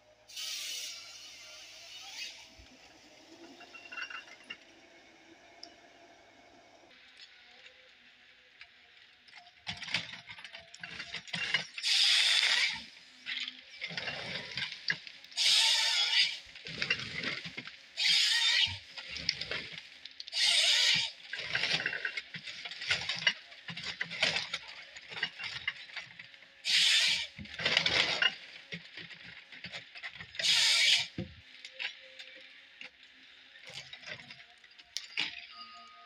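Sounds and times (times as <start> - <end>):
chain saw cutting log: 0.3 - 2.9, 11.4 - 13.0, 15.4 - 19.7.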